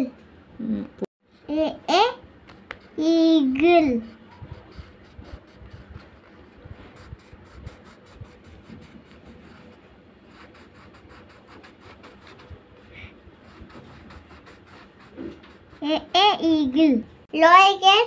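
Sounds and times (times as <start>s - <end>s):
crayon scratching on paper: 3.6s - 16.2s.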